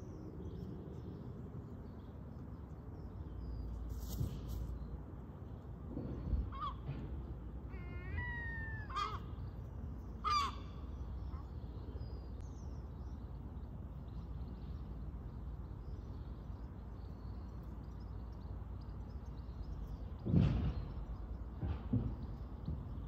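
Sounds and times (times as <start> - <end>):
low background rumble: 0.0 - 23.0
crow cawing: 7.7 - 9.3, 10.2 - 10.7.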